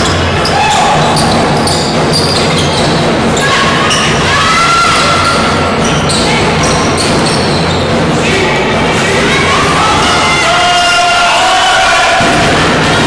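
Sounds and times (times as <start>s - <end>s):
sneakers squeaking on court: 0.0s - 4.2s, 5.0s - 8.0s
basketball bouncing: 0.0s - 4.3s
players calling out: 0.0s - 13.0s.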